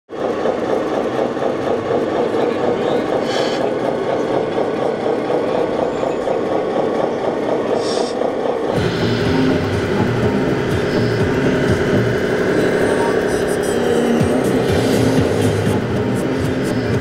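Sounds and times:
diesel engine idling sound module: 0:07.8 - 0:17.0.

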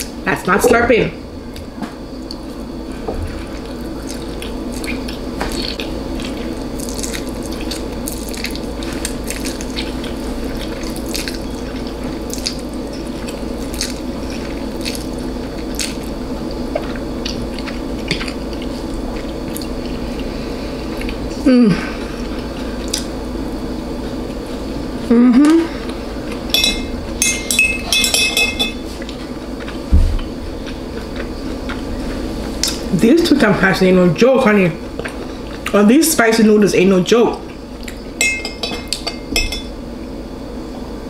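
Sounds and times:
steady low hum: 0:00.0 - 0:41.0
wet mouth chewing sounds: 0:03.3 - 0:20.3, 0:29.0 - 0:32.9, 0:37.5 - 0:38.1.

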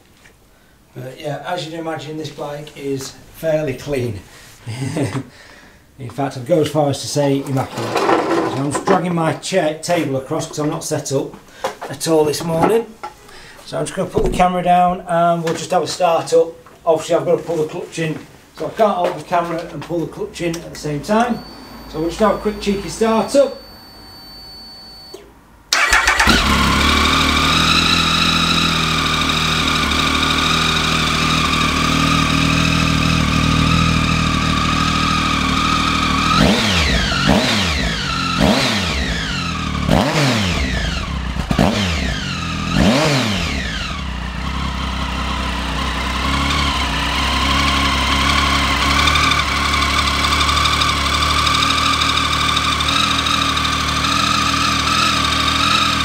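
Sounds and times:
motorcycle engine idling and revving: 0:25.8 - 0:56.0.

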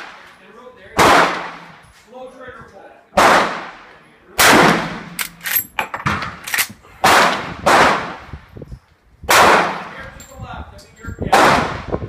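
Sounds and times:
gunshots: 0:01.0 - 0:01.7, 0:03.2 - 0:08.2, 0:09.3 - 0:10.0, 0:11.3 - 0:12.0.

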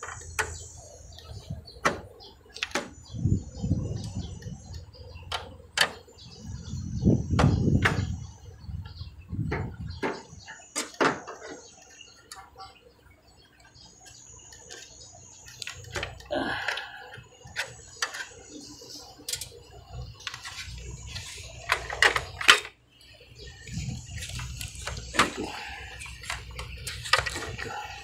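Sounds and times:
clicks and knocks of handled parts: 0:13.6 - 0:22.8, 0:23.6 - 0:28.0.

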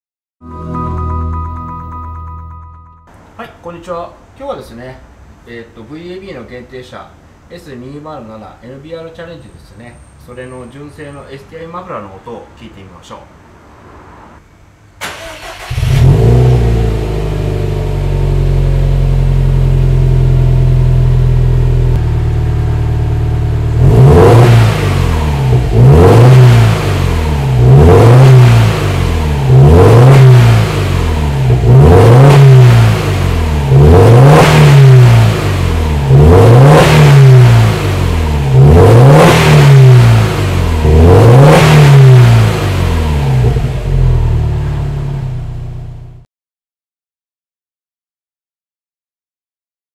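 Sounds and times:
car engine starting and idling: 0:15.0 - 0:46.2
engine revving in blips: 0:15.4 - 0:18.6, 0:23.4 - 0:44.5.

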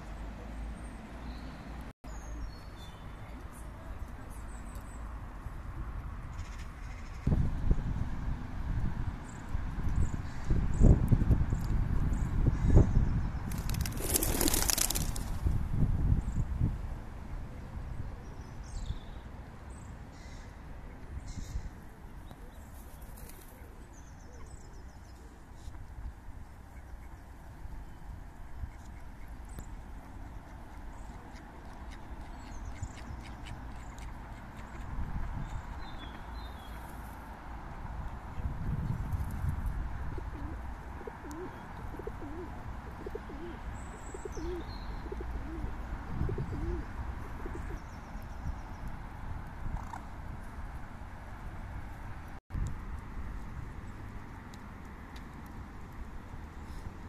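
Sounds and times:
songbirds chirping: 0:00.0 - 0:07.3, 0:17.2 - 0:37.6, 0:40.6 - 0:49.6
pigeon cooing: 0:40.2 - 0:43.6, 0:44.2 - 0:47.8.

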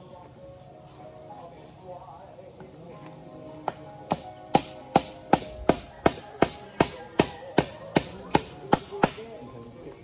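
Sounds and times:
hand tool striking wood: 0:03.6 - 0:09.3.

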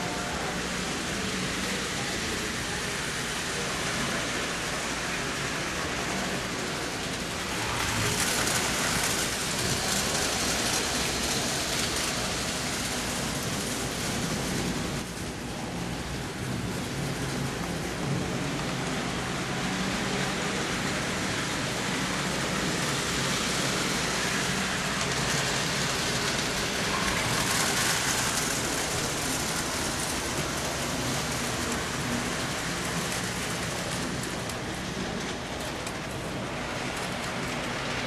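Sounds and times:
model trains rolling on track: 0:00.0 - 0:38.0.

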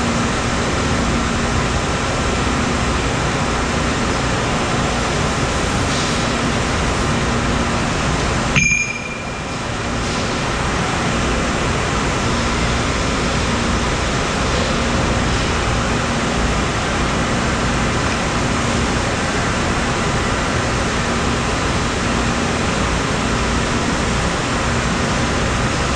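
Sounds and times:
machine shop din: 0:00.1 - 0:22.1
sharp metal clank: 0:08.6 - 0:09.4.

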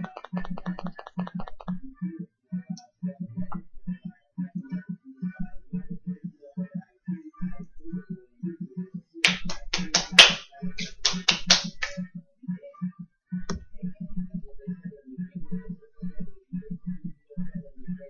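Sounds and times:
sharp snapping taps: 0:09.2 - 0:12.0.

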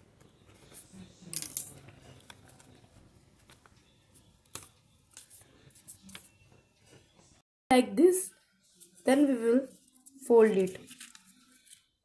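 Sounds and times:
paper rustling: 0:01.9 - 0:06.3, 0:09.6 - 0:12.0
scissors cutting paper: 0:10.7 - 0:12.0.

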